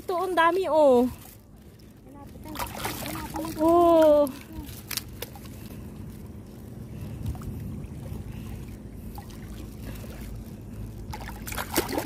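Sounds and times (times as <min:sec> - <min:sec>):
small water splashes: 0:00.0 - 0:06.0, 0:06.9 - 0:12.0
seawater sloshing: 0:00.0 - 0:12.0
low rumble: 0:00.7 - 0:12.0.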